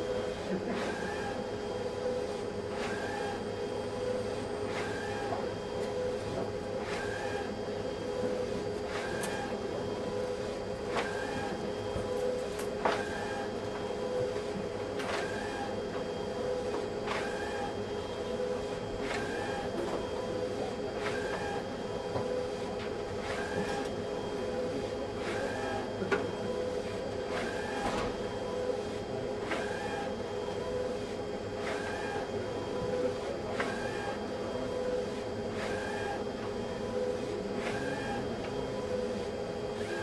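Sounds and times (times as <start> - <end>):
printer motor hum: 0.0 - 40.0
printer carriage click and whirr: 27.2 - 28.3.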